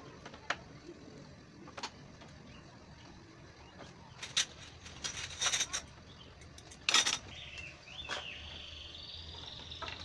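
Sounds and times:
metal rods and panels clattering: 4.2 - 5.9.

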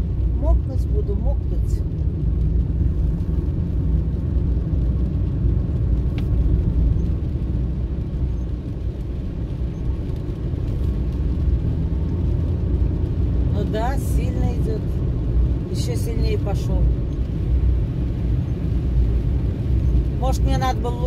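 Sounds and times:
car driving on wet road: 0.0 - 21.0.

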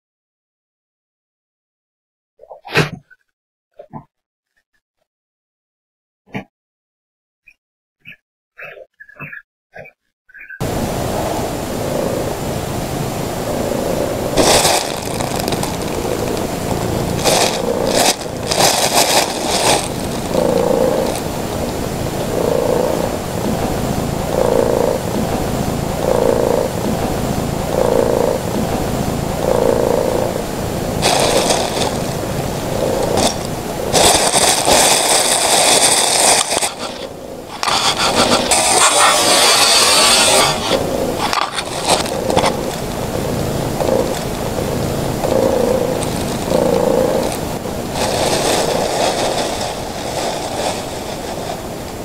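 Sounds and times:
cat purring: 11.1 - 37.0, 37.6 - 51.6
plastic bag crinkling: 14.4 - 21.8, 31.0 - 32.2, 32.8 - 37.0, 45.3 - 51.7.

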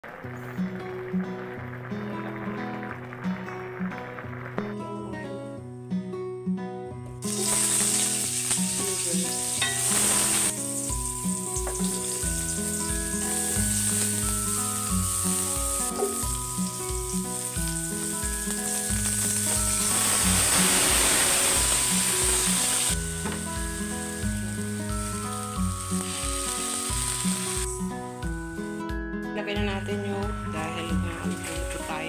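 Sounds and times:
food sizzling in hot oil: 7.2 - 28.8, 29.8 - 32.0.

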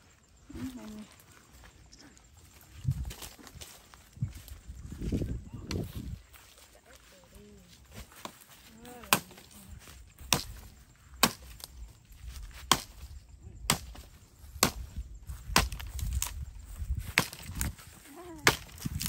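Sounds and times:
machete chopping branches: 9.0 - 9.6, 10.2 - 11.8, 12.5 - 16.4, 17.0 - 19.0.

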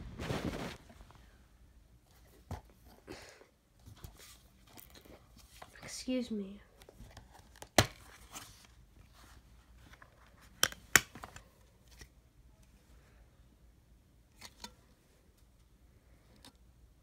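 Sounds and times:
faint rustling: 0.0 - 1.4
plastic case snapping: 10.6 - 11.4.

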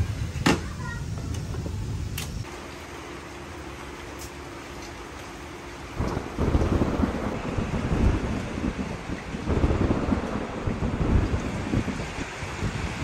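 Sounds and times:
thunder rumbling: 5.5 - 13.0.

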